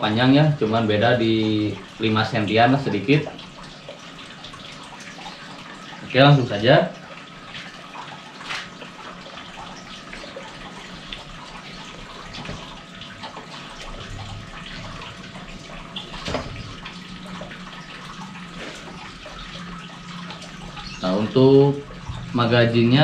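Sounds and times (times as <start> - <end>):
faint hum: 9.2 - 23.0.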